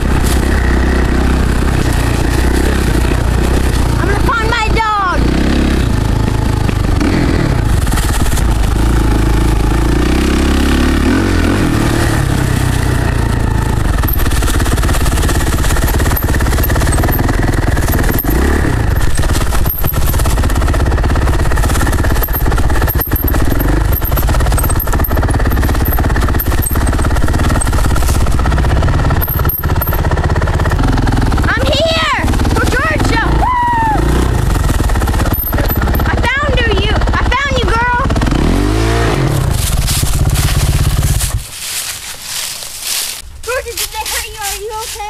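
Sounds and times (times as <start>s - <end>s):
leaves rustling and crunching: 0.0s - 4.3s, 7.8s - 30.1s, 38.7s - 45.0s.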